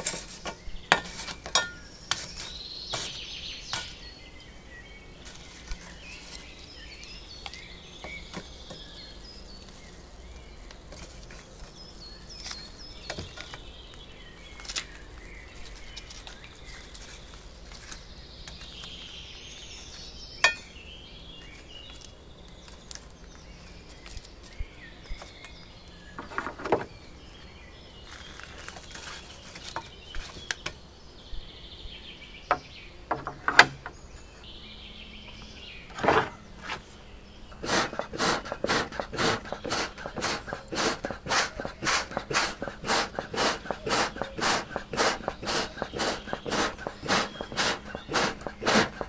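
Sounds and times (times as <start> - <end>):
birds chirping: 0.0 - 49.0
tongs clinking on charcoal: 0.9 - 1.9
hand bellows puffing: 37.6 - 49.0.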